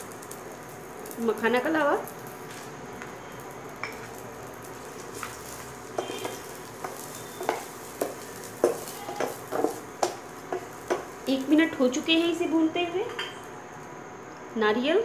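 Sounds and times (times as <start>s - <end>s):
nuts sizzling in a pan: 0.0s - 15.0s
spatula scraping a pan: 4.8s - 11.0s.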